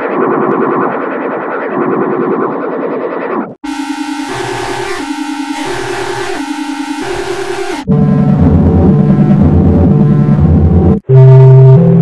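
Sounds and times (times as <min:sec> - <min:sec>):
distorted two-tone siren: 0:03.6 - 0:12.0
low bass rumble: 0:07.9 - 0:11.0.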